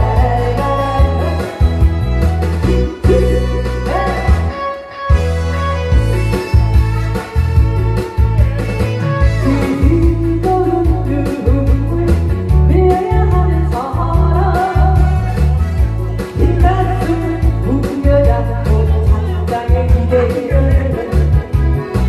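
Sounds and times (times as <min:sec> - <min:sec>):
woman singing into microphone: 0:00.0 - 0:04.8, 0:09.4 - 0:15.6, 0:16.3 - 0:21.6
amplified backing music: 0:00.0 - 0:22.0.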